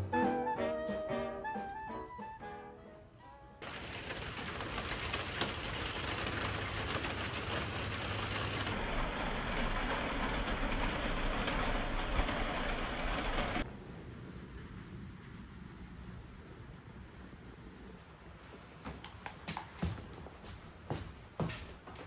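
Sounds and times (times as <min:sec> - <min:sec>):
steady rain: 0:03.6 - 0:13.7.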